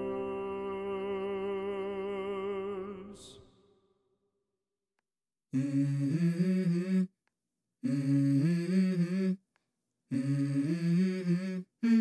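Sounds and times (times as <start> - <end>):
person humming slow melody: 0.0 - 2.6, 5.6 - 7.1, 7.8 - 9.4, 10.1 - 12.0.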